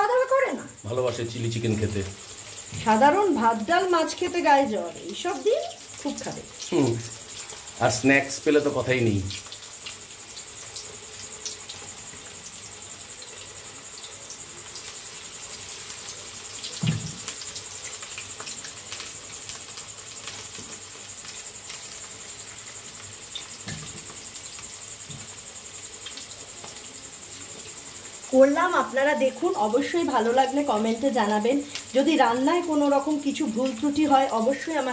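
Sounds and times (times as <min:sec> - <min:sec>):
food sizzling in hot oil: 0:00.0 - 0:34.9.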